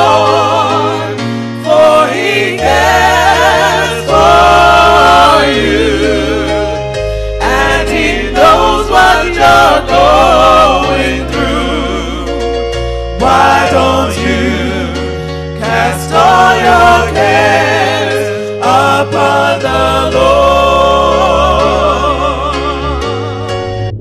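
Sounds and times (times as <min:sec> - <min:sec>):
gospel voices singing: 0:00.0 - 0:23.7
bass line: 0:00.0 - 0:24.0
instrumental backing: 0:00.0 - 0:24.0.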